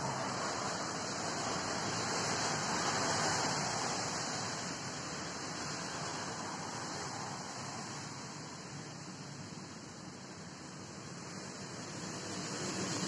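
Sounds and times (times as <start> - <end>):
rain falling: 0.0 - 7.8.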